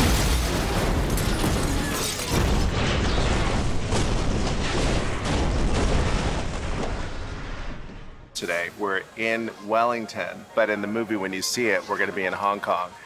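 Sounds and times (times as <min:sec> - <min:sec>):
metal crunching: 0:00.0 - 0:07.2
heavy crash impacts: 0:00.0 - 0:08.3.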